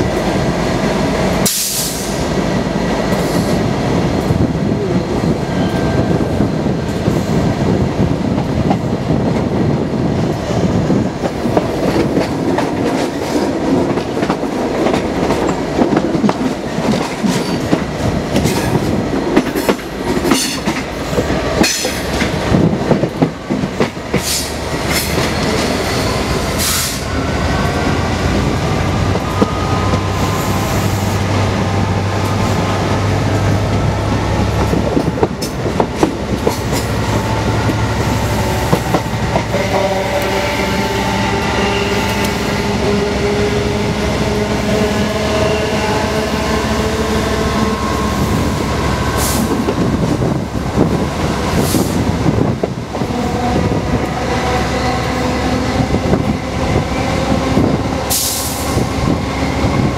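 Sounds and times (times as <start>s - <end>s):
diesel locomotive engine drone: 0.0s - 59.9s
train wheels on rails: 0.0s - 59.9s
rushing air: 17.6s - 59.9s.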